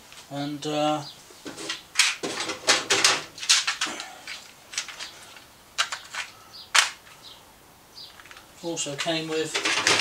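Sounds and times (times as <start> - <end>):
sharp clicks and knocks: 8.1 - 10.0.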